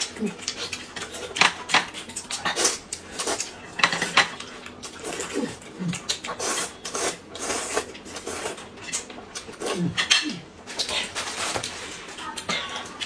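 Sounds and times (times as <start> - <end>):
noodles slurped and chewed: 4.4 - 13.0.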